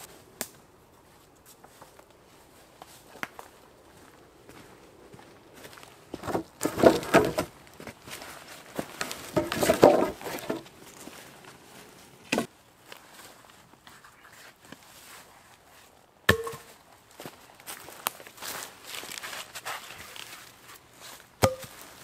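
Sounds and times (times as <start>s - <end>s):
footsteps crunching through leaves: 10.2s - 12.2s, 16.6s - 22.0s.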